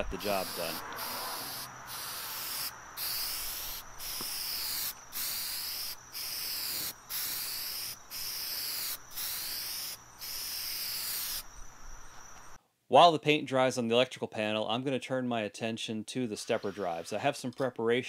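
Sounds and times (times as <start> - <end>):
spray-paint can hissing: 0.2 - 11.5.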